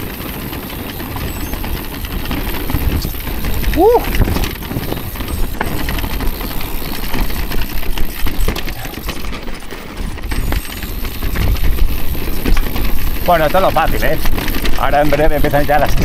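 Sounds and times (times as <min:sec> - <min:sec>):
bike rattling: 0:00.0 - 0:16.0
wind rumble on microphone: 0:01.0 - 0:06.4, 0:10.0 - 0:16.0.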